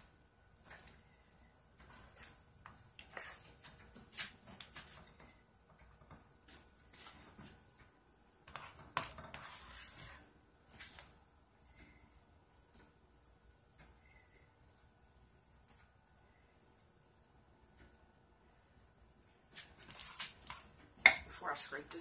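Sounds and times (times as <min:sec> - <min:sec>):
spatula scraping crock pot: 0:08.5 - 0:10.2.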